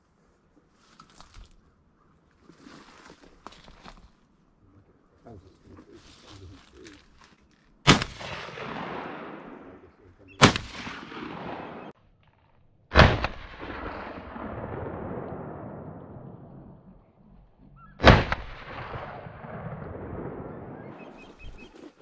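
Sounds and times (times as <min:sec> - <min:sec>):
shotgun shots with long echo: 0:07.8 - 0:12.0, 0:12.9 - 0:17.0, 0:18.0 - 0:21.7.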